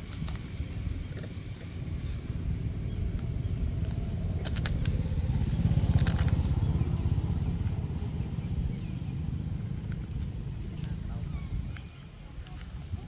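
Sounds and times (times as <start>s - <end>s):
motorcycle engine passing: 0.8s - 11.8s
short crackles: 3.1s - 6.8s.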